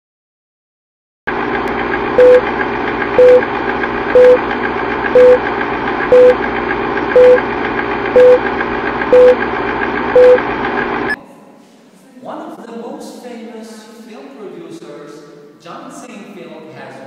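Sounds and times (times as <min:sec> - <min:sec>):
film projector whirr and clatter: 0:01.3 - 0:11.2
short beeps: 0:02.2 - 0:02.4, 0:03.2 - 0:03.4, 0:04.2 - 0:04.4, 0:05.2 - 0:05.4, 0:06.1 - 0:06.4, 0:07.2 - 0:07.4, 0:08.2 - 0:08.4, 0:09.1 - 0:09.4, 0:10.2 - 0:10.4.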